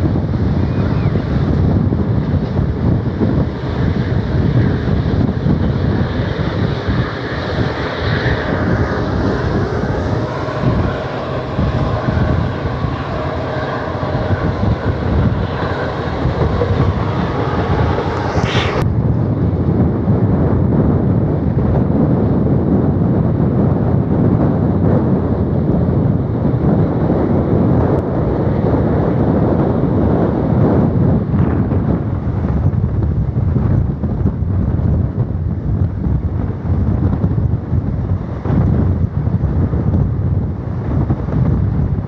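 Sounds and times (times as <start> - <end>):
wind rushing: 0.0 - 42.0
train wheels rumbling on rails: 6.0 - 18.8.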